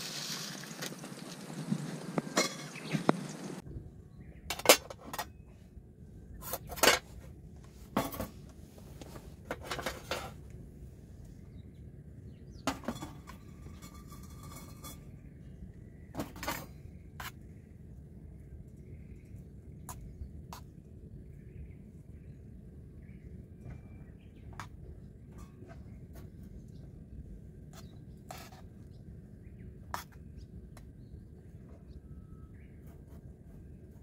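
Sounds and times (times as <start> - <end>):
steel tableware clinking: 2.4 - 2.8.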